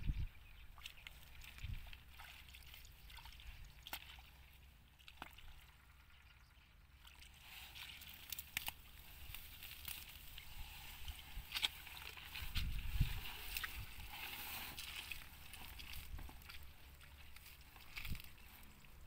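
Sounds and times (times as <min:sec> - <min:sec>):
hand squelching in mud: 0:00.8 - 0:05.6, 0:07.0 - 0:19.0
small crackles: 0:07.1 - 0:19.0.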